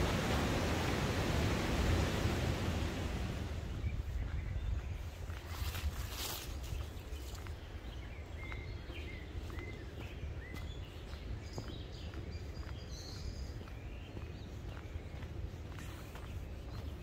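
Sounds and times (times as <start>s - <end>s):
wind rumbling on microphone: 0.0s - 17.0s
small birds chirping: 3.7s - 17.0s.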